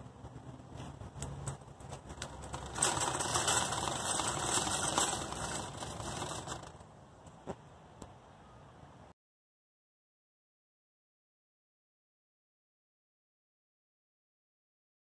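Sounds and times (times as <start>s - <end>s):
rapid mechanical clattering rattle: 1.8s - 6.8s.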